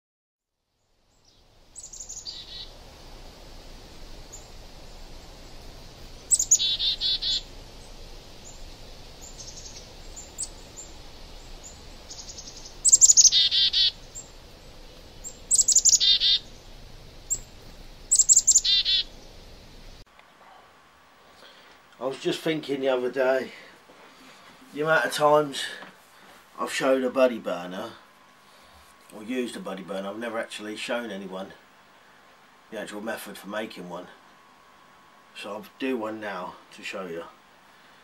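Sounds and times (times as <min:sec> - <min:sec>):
low background hiss: 0:00.5 - 0:38.0
songbird singing: 0:00.7 - 0:20.4
bird chirps: 0:01.1 - 0:02.8, 0:04.3 - 0:20.0.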